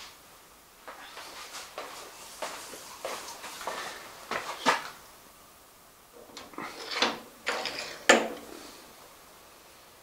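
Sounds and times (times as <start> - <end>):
metal knocks and scrapes: 6.3 - 8.5.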